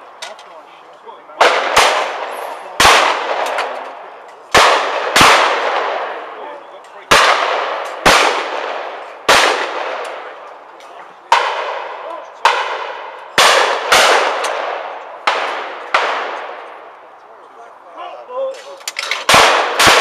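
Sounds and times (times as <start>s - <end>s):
shotguns firing with echo: 1.4s - 10.4s, 11.3s - 16.9s, 19.1s - 20.0s.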